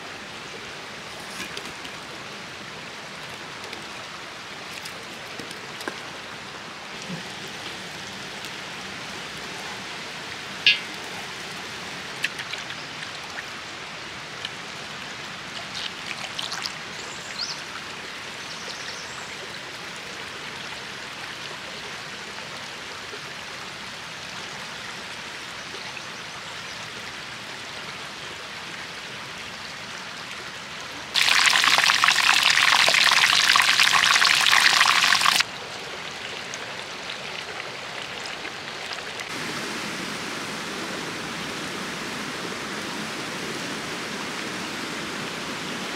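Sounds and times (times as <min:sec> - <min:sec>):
stream flowing: 0:00.0 - 0:45.9
oil sizzling in a pan: 0:31.2 - 0:35.4.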